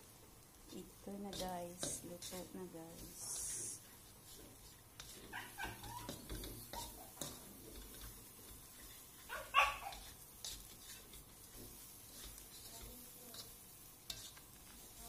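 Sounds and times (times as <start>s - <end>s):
spatula scraping a wok: 0.6s - 15.0s
dog barking: 5.3s - 6.1s, 9.3s - 10.0s.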